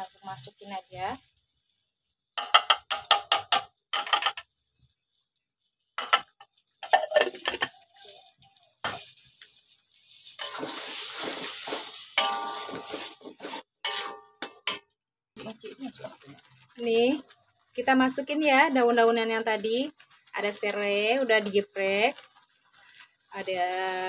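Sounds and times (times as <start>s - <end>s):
paste sizzling in oil: 0.0s - 2.7s, 4.5s - 14.1s, 15.4s - 24.0s
glass jar knocking against wok: 2.4s - 4.4s
wok ringing: 10.4s - 10.9s, 12.2s - 13.3s, 13.9s - 14.8s
metal spoon clanking and scraping: 10.4s - 14.8s.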